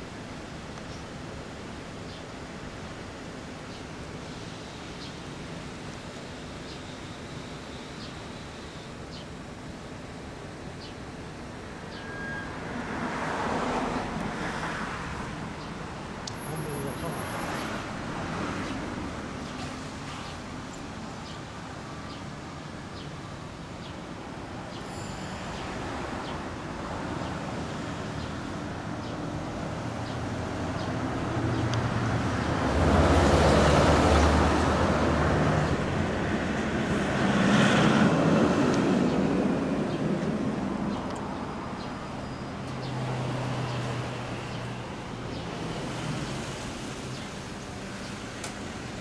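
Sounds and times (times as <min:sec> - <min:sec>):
street traffic rumbling: 0:00.0 - 0:49.0
heavy truck passing: 0:11.7 - 0:20.7, 0:24.5 - 0:49.0.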